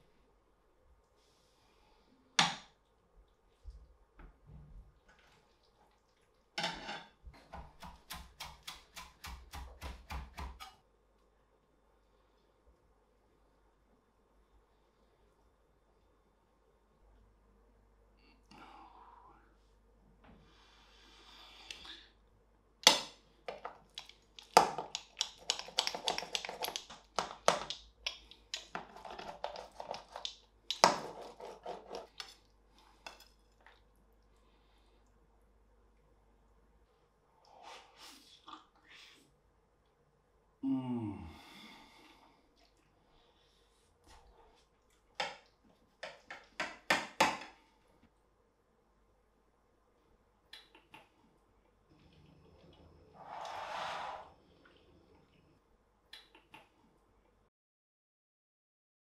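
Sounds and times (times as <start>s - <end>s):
knife chopping on wooden board: 7.6s - 10.7s.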